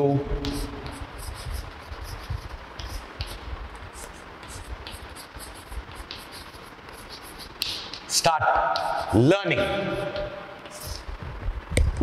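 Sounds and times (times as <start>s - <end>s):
chalk scratching on chalkboard: 0.4s - 11.1s.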